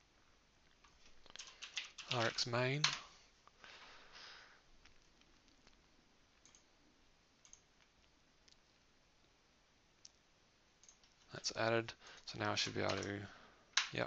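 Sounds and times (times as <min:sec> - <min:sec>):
computer clicks: 0:01.3 - 0:03.0, 0:06.4 - 0:06.7, 0:07.4 - 0:07.9, 0:10.8 - 0:11.2, 0:12.6 - 0:13.2, 0:13.8 - 0:14.0.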